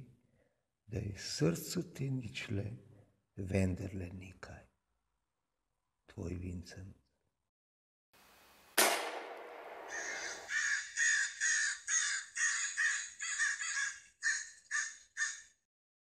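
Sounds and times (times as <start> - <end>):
sharp bang: 8.8 - 10.5
crows cawing: 9.8 - 15.6.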